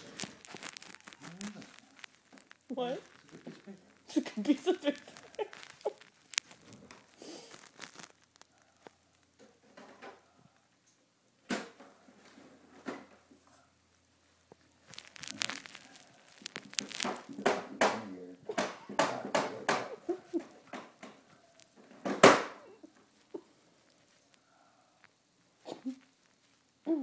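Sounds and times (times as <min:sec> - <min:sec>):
paper rustling: 0:00.0 - 0:08.5, 0:14.8 - 0:18.0.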